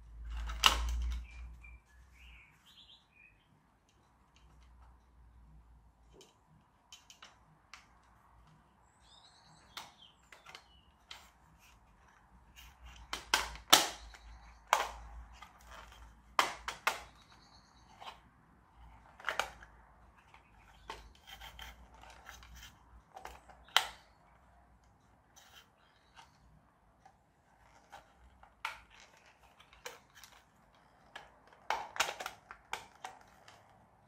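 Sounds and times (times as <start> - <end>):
plastic parts clicking and snapping: 0.1 - 1.8, 3.8 - 5.4, 6.0 - 34.0
bird chirping: 1.0 - 3.8, 8.5 - 13.2, 13.8 - 16.2, 16.8 - 19.3, 20.1 - 26.8.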